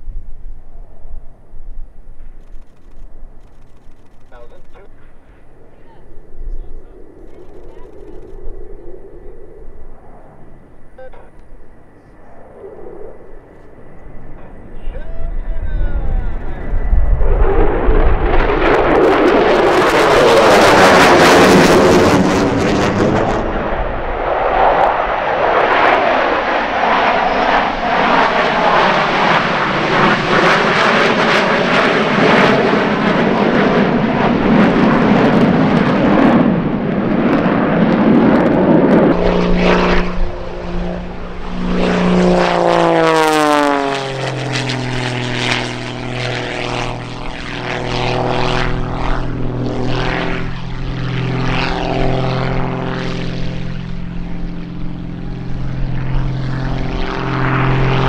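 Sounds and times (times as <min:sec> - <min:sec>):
jet fly-by roar: 0:00.0 - 0:58.0
propeller plane engine: 0:00.0 - 0:58.0.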